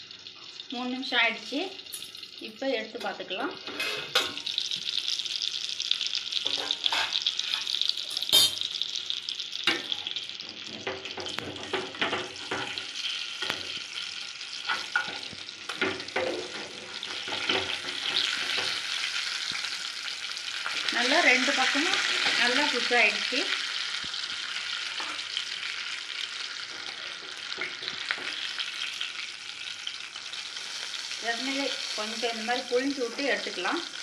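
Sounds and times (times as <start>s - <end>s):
chicken sizzling in oil: 0.0s - 34.0s
spatula scraping and tapping pan: 6.4s - 8.7s, 10.7s - 13.8s, 14.6s - 18.9s, 26.7s - 28.6s.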